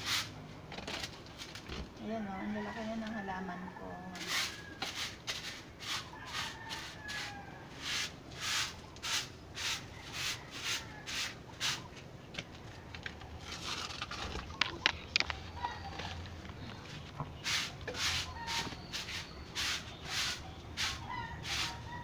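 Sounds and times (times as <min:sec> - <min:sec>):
stick broom sweeping concrete: 0:00.0 - 0:00.4, 0:04.2 - 0:11.9, 0:17.4 - 0:22.0.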